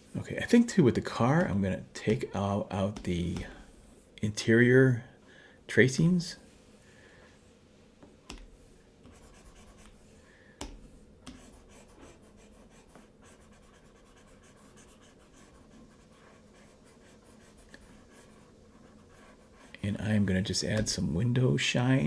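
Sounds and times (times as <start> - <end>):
stylus tapping on drawing tablet: 8.2 - 10.0, 10.6 - 11.6.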